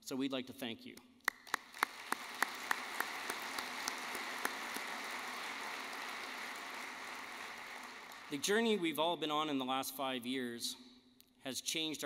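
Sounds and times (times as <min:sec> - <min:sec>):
audience applauding: 0:01.3 - 0:08.8.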